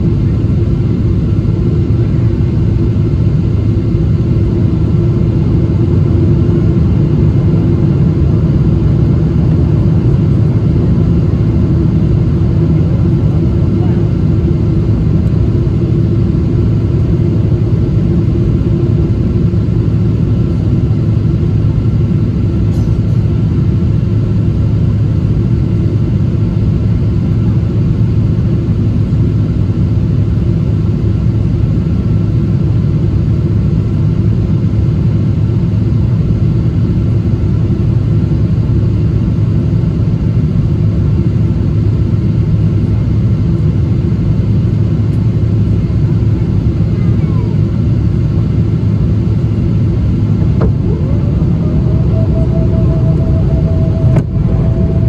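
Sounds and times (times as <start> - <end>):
aircraft cabin engine rumble: 0.0 - 55.0
faint high tone: 50.4 - 55.0.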